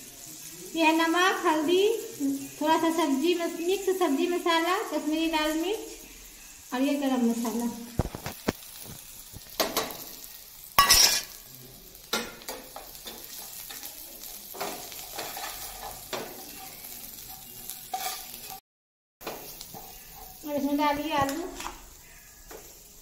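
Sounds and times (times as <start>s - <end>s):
onions frying in hot oil: 0.0s - 18.6s, 19.2s - 23.0s
spatula scraping a pan: 12.2s - 18.6s, 19.2s - 22.9s.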